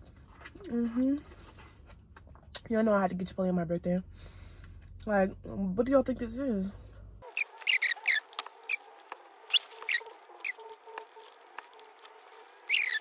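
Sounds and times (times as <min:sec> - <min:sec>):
person chewing food: 0:07.2 - 0:13.0
short squeaks: 0:07.2 - 0:13.0.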